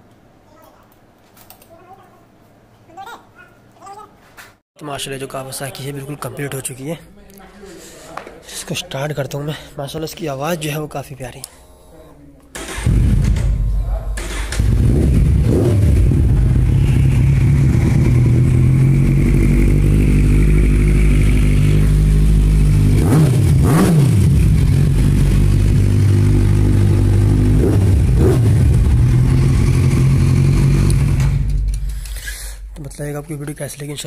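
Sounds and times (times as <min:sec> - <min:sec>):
motorcycle engine idling: 0:12.8 - 0:23.6.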